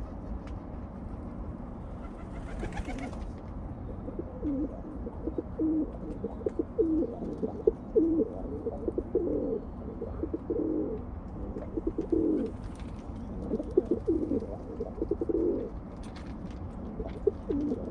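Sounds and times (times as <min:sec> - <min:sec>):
pigeons cooing: 0:01.9 - 0:15.8, 0:16.8 - 0:17.9.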